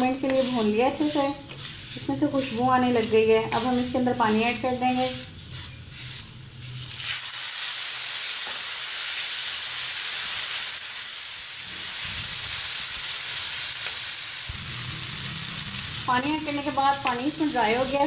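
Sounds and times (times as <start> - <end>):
spatula stirring dry grains: 0.0 - 7.2, 14.5 - 18.0
water sizzling in a hot pan: 0.0 - 18.0.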